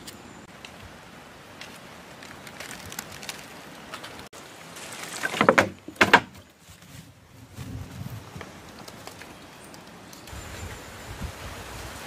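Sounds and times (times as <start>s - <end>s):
loud crackling rustles: 1.4s - 10.4s.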